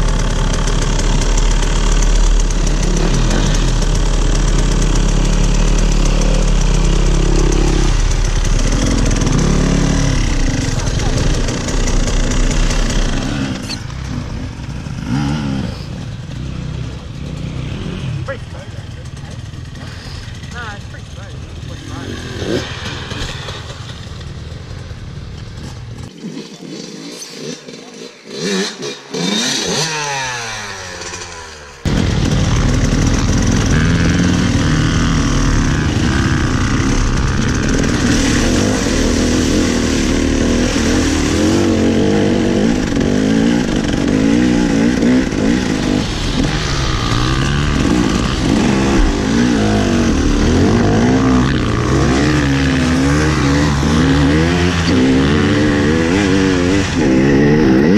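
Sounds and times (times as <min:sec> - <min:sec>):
dirt bike engines revving: 0:00.0 - 0:57.9.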